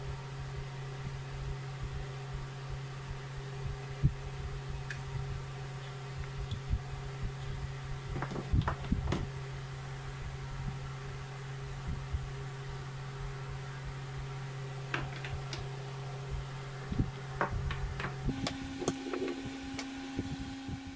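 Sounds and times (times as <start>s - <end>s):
steady low hum: 0.0s - 20.9s.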